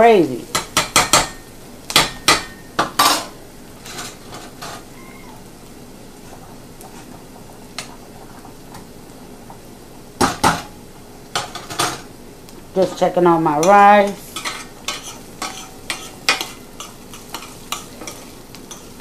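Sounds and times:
faint sizzle: 0.0 - 19.0
metal spoon clinking on skillet: 13.6 - 19.0.

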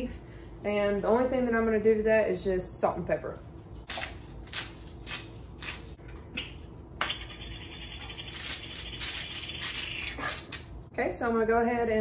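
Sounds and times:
spice grinder grinding: 7.1 - 10.8.

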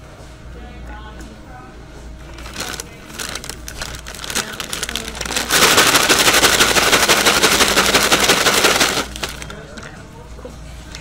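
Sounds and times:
paper bag crinkling: 2.2 - 9.8
fries rattling in paper bag: 2.2 - 9.9.

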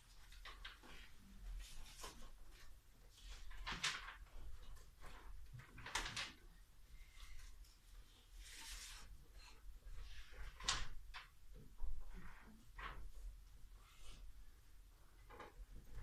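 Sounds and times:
paper rustling: 0.0 - 6.4, 7.0 - 11.4.

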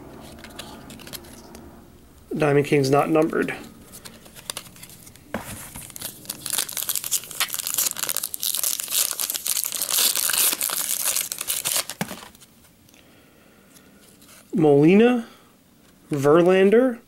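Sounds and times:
foil wrapper tearing and crinkling: 3.8 - 12.5.

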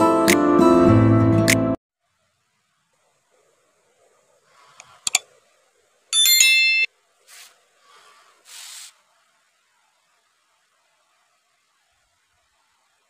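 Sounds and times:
bell ding: 6.1 - 6.9.

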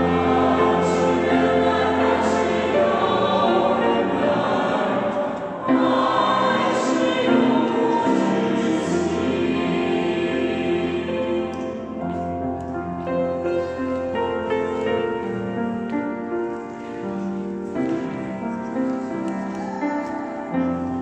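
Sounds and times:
church choir singing a hymn: 0.0 - 15.4
digital piano accompaniment: 0.0 - 21.0.

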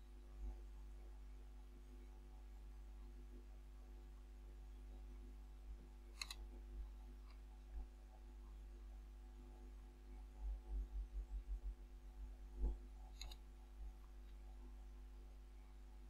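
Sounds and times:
faint electrical hum: 0.0 - 16.0
computer mouse clicks: 6.2 - 6.4, 13.1 - 13.4.

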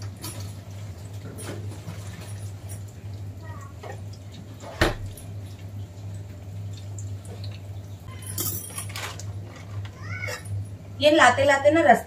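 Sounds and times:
snacks crackling in hot oil: 2.5 - 8.1, 8.9 - 10.9.

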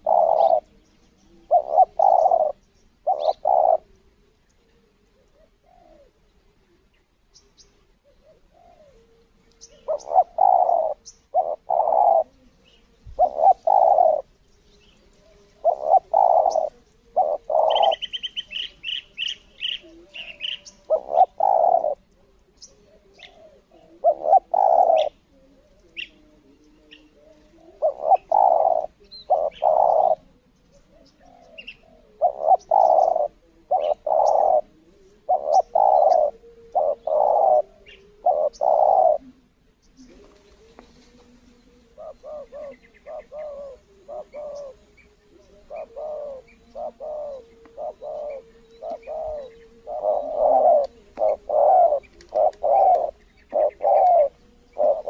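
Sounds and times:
bird trilling: 0.0 - 0.8, 1.5 - 3.8, 9.6 - 14.3, 15.6 - 22.0, 23.2 - 25.2, 27.0 - 39.4, 41.8 - 55.0
doves cooing: 0.0 - 55.0.

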